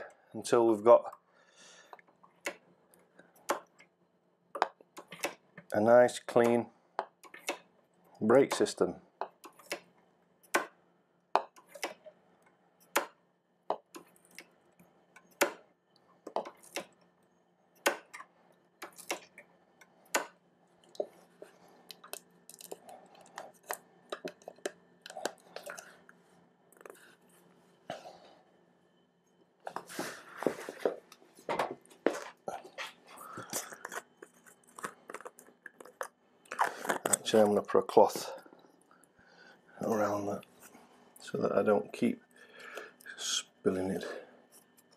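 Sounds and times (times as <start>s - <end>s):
rustling and handling: 29.3s - 37.4s.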